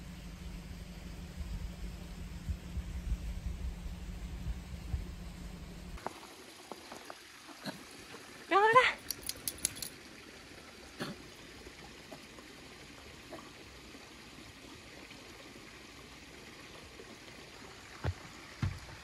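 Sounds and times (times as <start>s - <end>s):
outdoor ambience hiss: 0.0s - 19.0s
soft low thumps: 1.4s - 6.0s, 18.0s - 19.0s.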